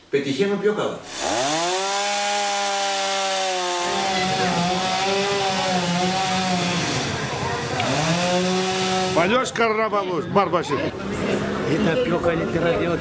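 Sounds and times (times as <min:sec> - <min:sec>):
chainsaw cutting through wood: 0:01.1 - 0:09.4.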